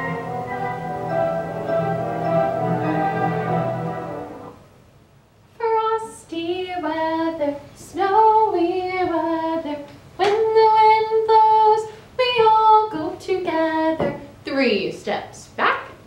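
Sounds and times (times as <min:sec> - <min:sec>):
woman singing unaccompanied: 0:05.6 - 0:14.8.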